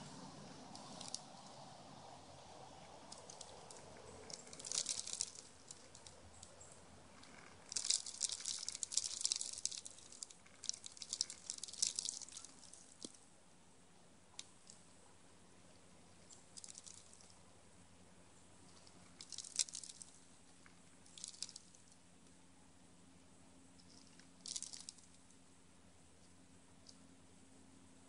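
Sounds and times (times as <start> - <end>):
squirrel crunching seeds: 0.7 - 1.6, 2.3 - 13.3, 15.5 - 17.4, 18.6 - 22.3, 23.7 - 25.4.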